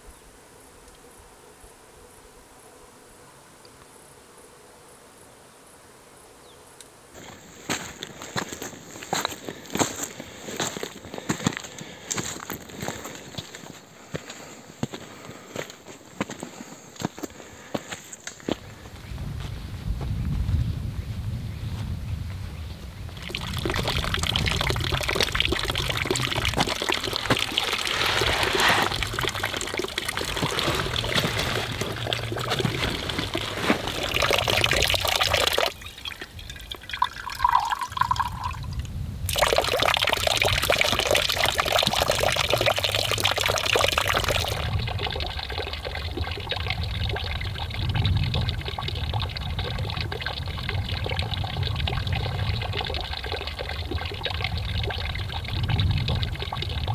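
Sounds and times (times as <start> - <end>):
water trickling into wooden trough: 23.2 - 56.9.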